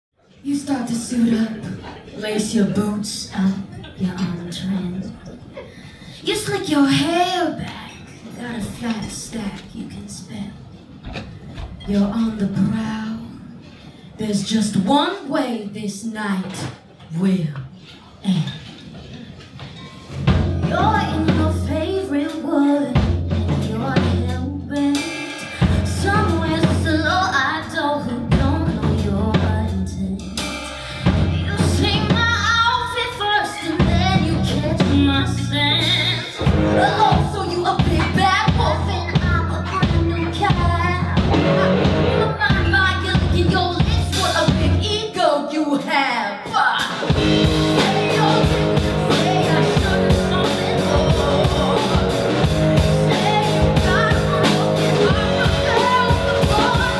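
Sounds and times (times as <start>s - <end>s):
woman singing: 0.5s - 5.2s, 20.6s - 56.9s
live band playing: 20.0s - 22.3s, 23.0s - 27.5s, 28.3s - 45.0s, 46.5s - 56.9s.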